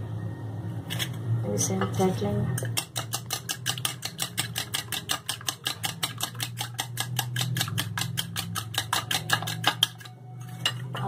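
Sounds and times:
fork beating egg in glass bowl: 0:02.6 - 0:11.0.

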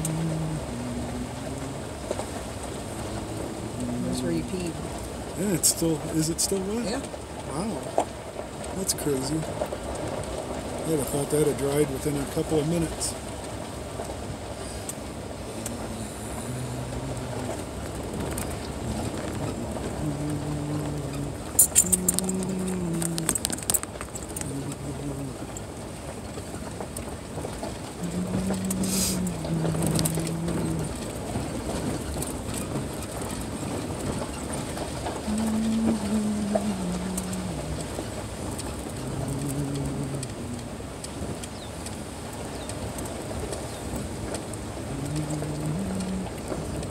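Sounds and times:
low hum stepping down in pitch: 0:00.0 - 0:04.7, 0:28.0 - 0:31.0, 0:38.9 - 0:40.7
low steady hum: 0:00.0 - 0:46.9
vehicle rumbling on dirt road: 0:00.0 - 0:46.9.

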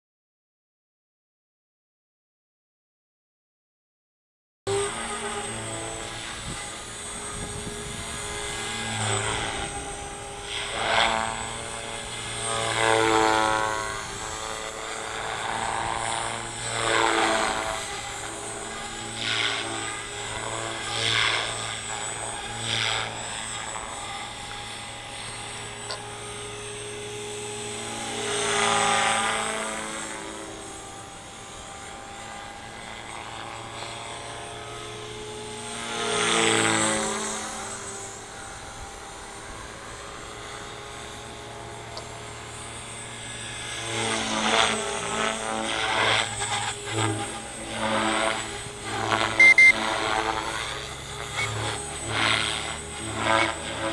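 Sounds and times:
rc helicopter motor whine: 0:04.7 - 0:53.9.

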